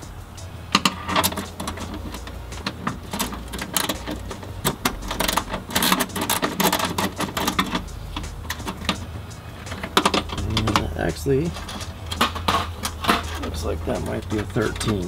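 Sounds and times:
socket ratchet clicking: 0.7 - 10.4.

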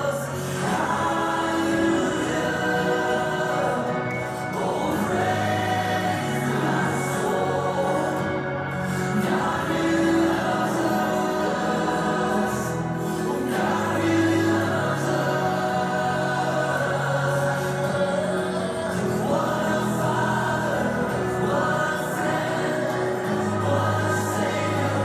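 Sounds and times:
choir singing held chords: 0.0 - 25.0.

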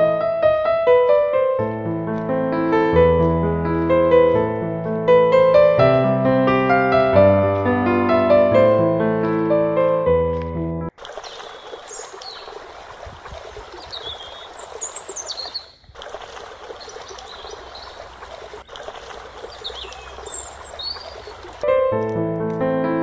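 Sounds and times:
piano music: 0.0 - 10.9, 21.6 - 23.0
river water flowing: 10.9 - 21.7
birds chirping and whistling: 11.2 - 12.5, 13.7 - 15.9, 16.8 - 18.1, 19.4 - 21.6.

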